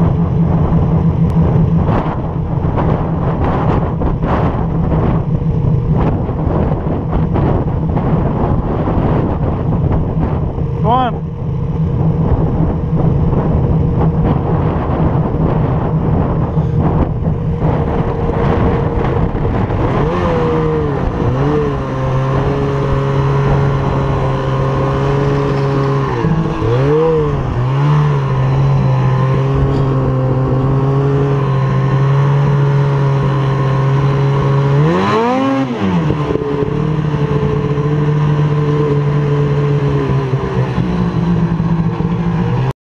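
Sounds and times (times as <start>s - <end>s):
rushing noise: 0.0s - 33.8s
snowmobile engine running: 0.0s - 42.7s.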